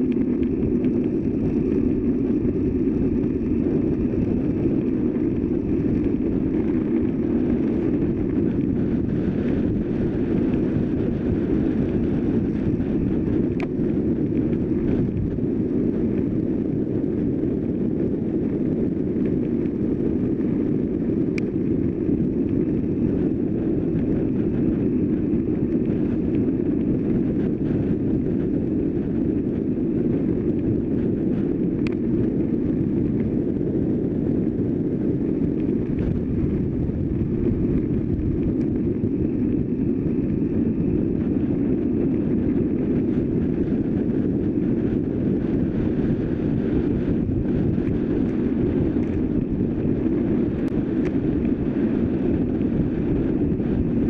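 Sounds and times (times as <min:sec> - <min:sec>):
bicycle rolling noise: 0:00.0 - 0:54.0
wind rush on microphone: 0:00.0 - 0:54.0
faint ticks: 0:31.8 - 0:32.0.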